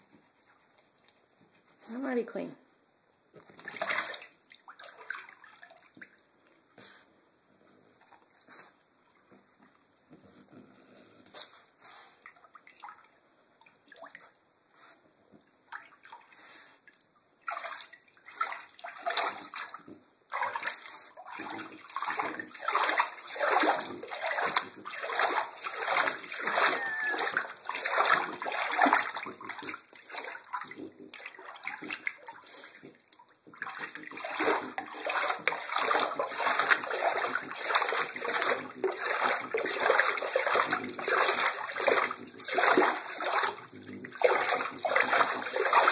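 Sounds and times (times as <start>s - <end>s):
dog splashing in bathwater: 3.4s - 6.2s, 17.4s - 45.9s.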